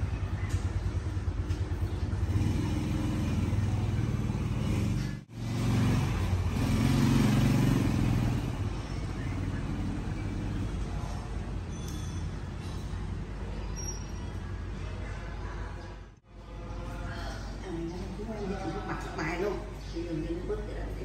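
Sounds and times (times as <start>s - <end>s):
vehicle engine running: 0.0s - 11.7s.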